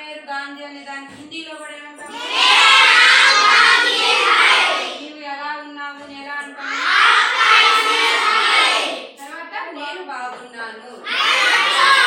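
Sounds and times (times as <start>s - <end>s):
children chanting in unison: 2.1s - 5.0s, 6.6s - 9.2s, 11.0s - 12.0s.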